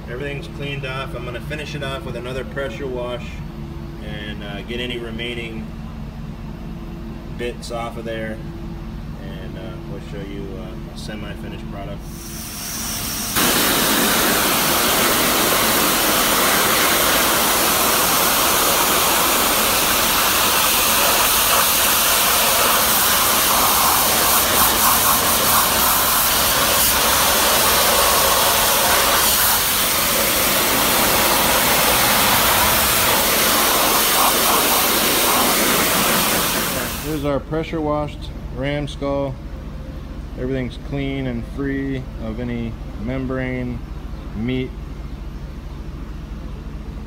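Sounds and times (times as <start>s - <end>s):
pressure washer jet spraying: 12.1s - 37.3s.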